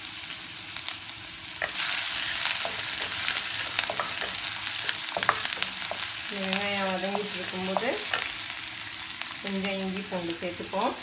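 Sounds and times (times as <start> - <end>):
onions sizzling in hot oil: 0.0 - 11.0
spatula clicking and scraping pan: 1.6 - 8.4.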